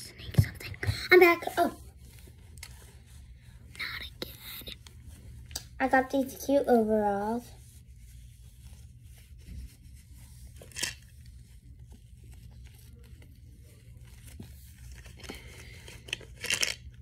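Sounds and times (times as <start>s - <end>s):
clothes rustling and crinkling: 0.0s - 17.0s.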